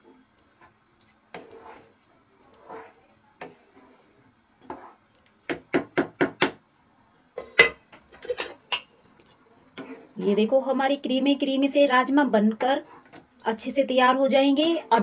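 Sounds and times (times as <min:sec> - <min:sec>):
spoon stirring thick curry: 0:00.0 - 0:06.2, 0:07.4 - 0:10.7.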